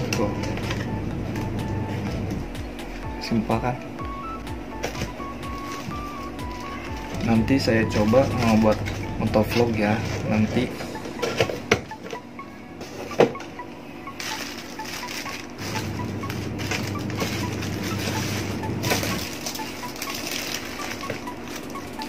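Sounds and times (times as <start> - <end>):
background music: 0.0 - 22.0
plastic bags crinkling: 5.4 - 10.6, 14.2 - 22.0.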